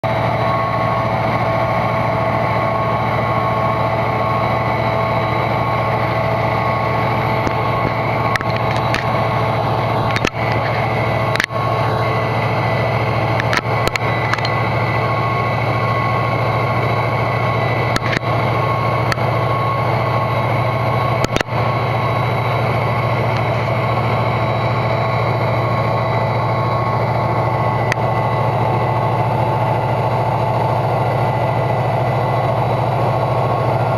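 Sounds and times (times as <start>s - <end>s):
diesel locomotive engine drone: 0.0s - 33.9s
sharp clicks: 7.4s - 9.2s, 13.3s - 14.6s.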